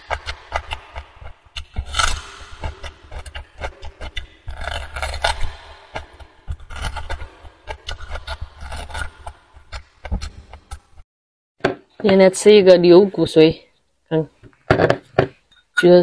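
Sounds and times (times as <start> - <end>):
gnawing and sucking on bone: 0.0 - 10.8.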